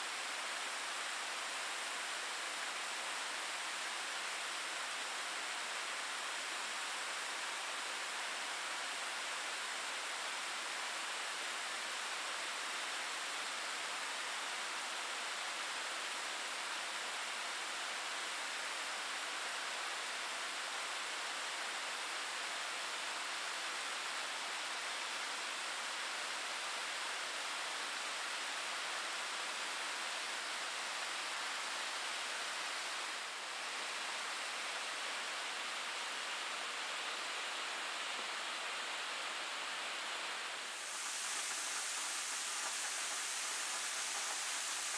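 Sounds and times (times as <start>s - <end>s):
waterfall rushing: 40.7s - 44.9s.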